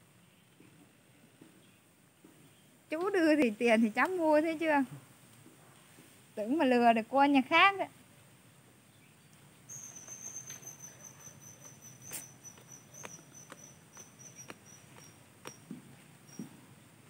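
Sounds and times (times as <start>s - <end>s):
cricket trilling: 9.7s - 16.5s
sharp clicks: 11.6s - 15.7s.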